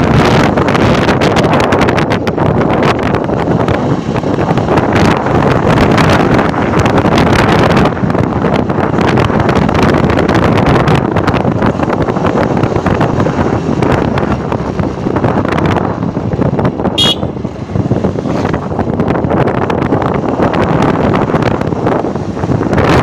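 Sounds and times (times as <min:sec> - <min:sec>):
motorcycle engine running: 0:00.0 - 0:23.0
wind buffeting microphone: 0:00.0 - 0:23.0
short horn beep: 0:17.0 - 0:17.3.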